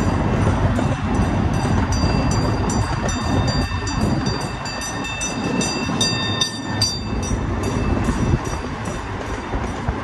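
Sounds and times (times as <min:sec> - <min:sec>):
rail joint clicks: 0:00.0 - 0:10.0
train cars rumbling on track: 0:00.0 - 0:10.0.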